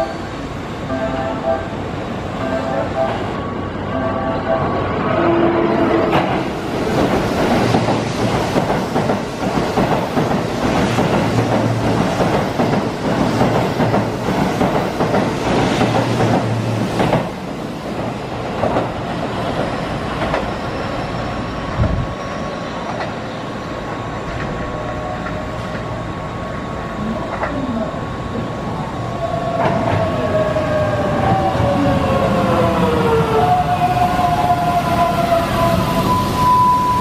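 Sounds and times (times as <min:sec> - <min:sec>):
train wheels rumbling and clicking: 0:05.9 - 0:21.1, 0:22.8 - 0:28.6, 0:29.4 - 0:35.9.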